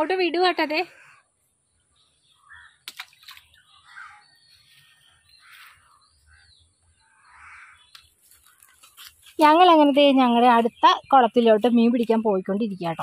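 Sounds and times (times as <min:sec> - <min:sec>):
faint bird calls: 0:01.9 - 0:08.7.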